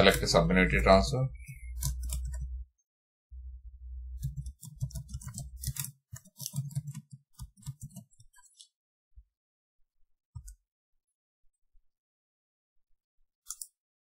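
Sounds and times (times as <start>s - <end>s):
keyboard typing clicks: 1.5s - 2.5s, 4.2s - 8.3s
low rumble: 3.3s - 4.2s.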